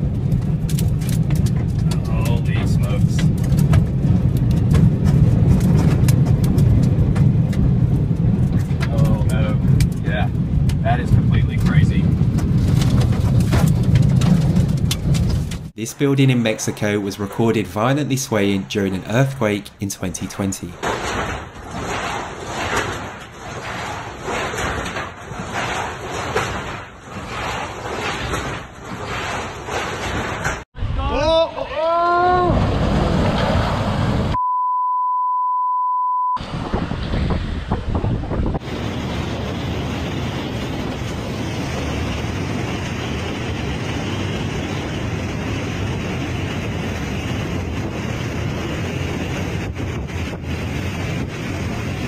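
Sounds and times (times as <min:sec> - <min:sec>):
wind buffeting microphone: 0:00.0 - 0:15.8, 0:36.4 - 0:52.0
rain and spray rushing: 0:00.0 - 0:30.7, 0:36.4 - 0:52.0.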